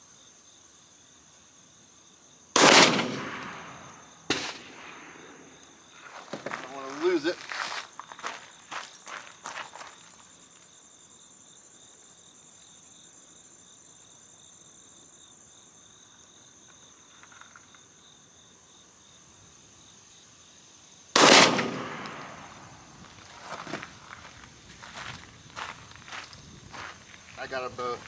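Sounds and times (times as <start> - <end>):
pistol shot with echo: 2.6 - 5.5, 21.2 - 22.8.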